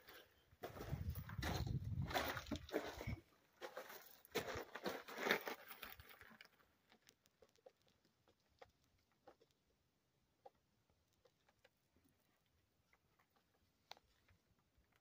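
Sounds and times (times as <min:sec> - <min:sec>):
crunching on loose gravel: 0:00.0 - 0:09.7.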